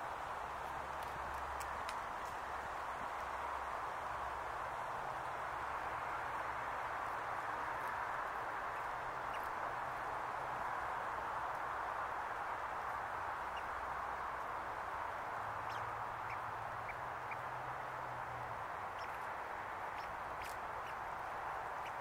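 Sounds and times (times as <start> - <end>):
squirrel gnawing cone: 0.6 - 3.3, 18.6 - 22.0.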